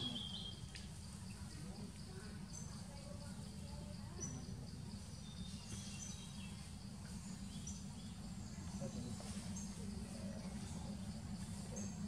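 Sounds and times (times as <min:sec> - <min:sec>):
birds chirping: 0:00.0 - 0:12.0
steady low rumble: 0:00.0 - 0:12.0.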